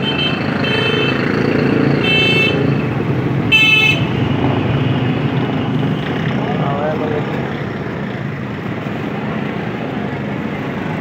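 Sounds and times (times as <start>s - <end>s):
vehicle horn toots: 0.0s - 1.2s, 2.0s - 2.6s, 3.5s - 4.1s
traffic engine rumble: 0.0s - 11.0s.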